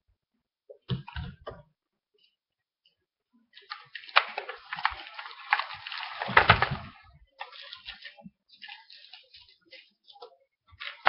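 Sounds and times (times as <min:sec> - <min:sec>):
packaging crinkling and tearing: 0:03.6 - 0:09.9.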